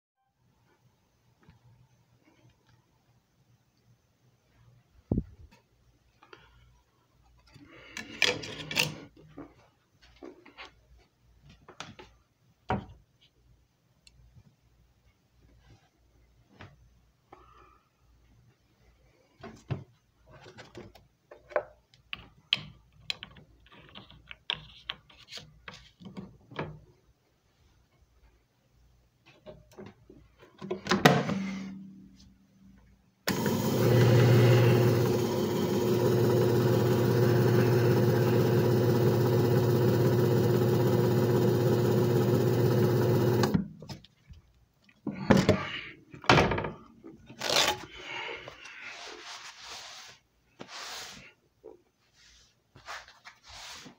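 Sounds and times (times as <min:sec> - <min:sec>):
machine motor humming: 0:33.3 - 0:43.6.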